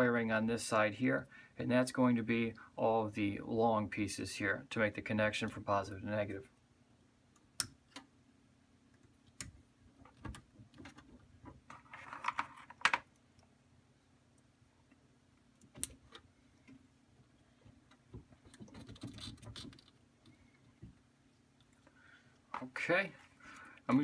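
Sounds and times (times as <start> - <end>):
wires rustling: 8.9 - 13.5, 14.4 - 24.0.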